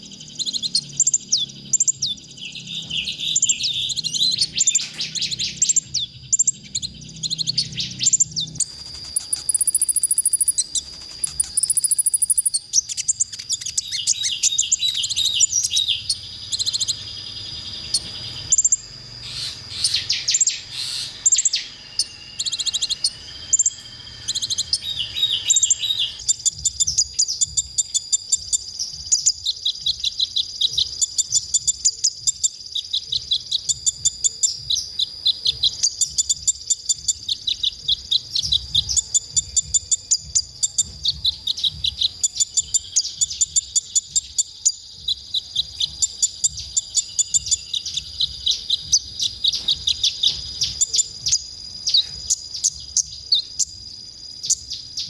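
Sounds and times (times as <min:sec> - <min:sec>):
steady high whine: 0:00.0 - 0:30.6
bird twittering: 0:00.0 - 0:55.0
sharp high bird chirps: 0:00.0 - 0:55.0.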